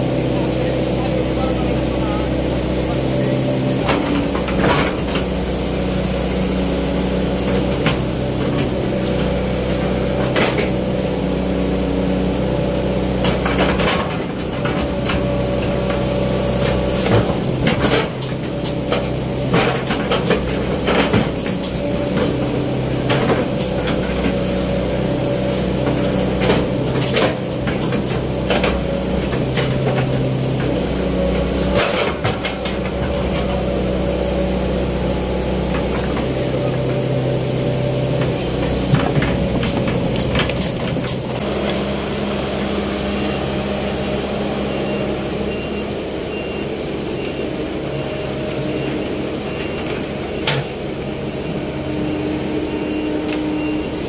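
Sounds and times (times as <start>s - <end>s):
excavator diesel engine running: 0.0s - 54.0s
metal clanks and knocks: 16.7s - 24.4s, 31.7s - 33.6s, 38.1s - 41.5s.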